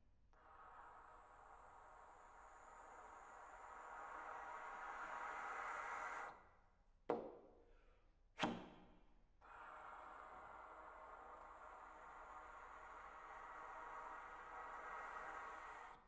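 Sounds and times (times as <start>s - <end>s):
sharp percussive pops: 8.4s - 8.8s.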